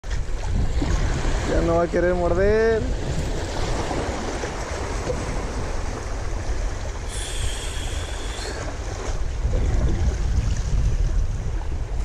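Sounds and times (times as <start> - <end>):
wind buffeting microphone: 0.0 - 12.0
small waves washing over rocks: 2.8 - 12.0
faint high whine: 7.1 - 8.7.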